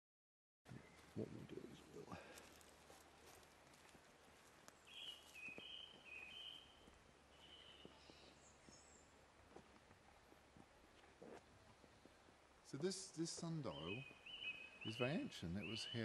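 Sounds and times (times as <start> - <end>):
bird singing faintly: 4.7 - 9.2, 13.4 - 16.0.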